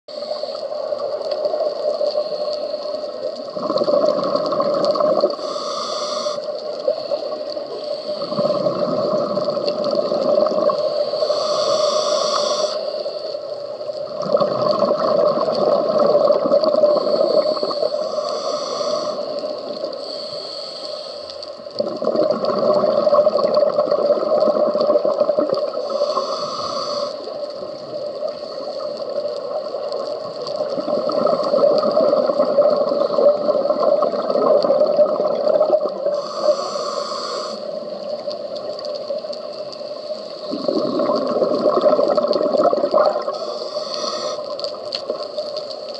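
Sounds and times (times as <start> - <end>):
regulator inhalation hiss: 0.1 - 3.5, 5.2 - 14.0, 15.6 - 21.8, 25.6 - 34.3, 35.4 - 41.3, 43.2 - 45.9
exhaled bubbles burbling: 3.3 - 5.5, 8.1 - 10.9, 14.0 - 17.9, 21.7 - 26.2, 27.6 - 36.3, 40.4 - 43.6.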